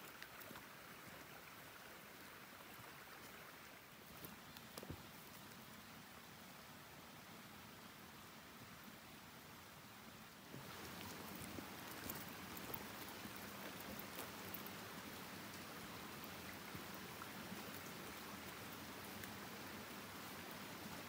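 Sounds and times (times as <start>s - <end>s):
faint ticks: 0.0s - 0.7s, 4.1s - 5.7s, 10.6s - 20.8s
stream trickling and splashing: 0.0s - 21.0s.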